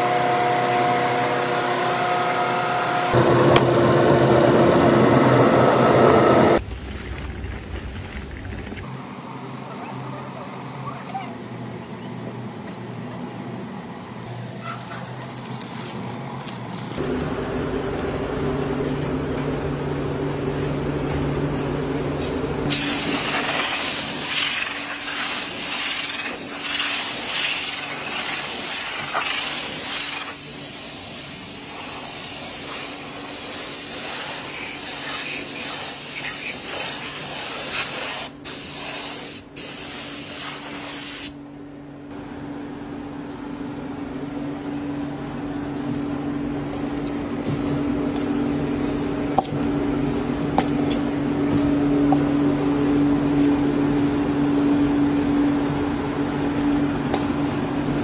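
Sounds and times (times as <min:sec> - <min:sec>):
factory machinery humming: 0:00.0 - 0:23.4, 0:41.3 - 0:58.0
loud even hiss: 0:22.7 - 0:41.4.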